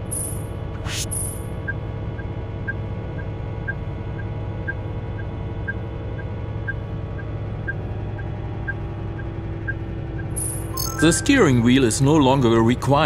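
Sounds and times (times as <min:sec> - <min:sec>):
short electronic beeps: 0:00.0 - 0:01.5, 0:10.2 - 0:11.6
truck engine drone: 0:00.0 - 0:13.0.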